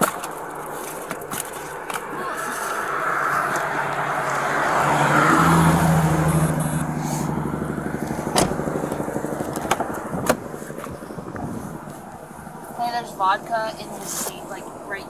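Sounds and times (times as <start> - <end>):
vehicle engine driving past: 2.1 - 12.7.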